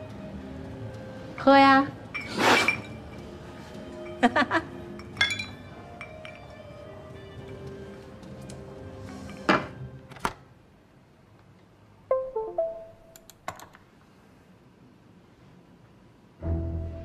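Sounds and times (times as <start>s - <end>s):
soft background music: 0.0s - 10.3s, 12.1s - 13.4s, 16.4s - 17.0s.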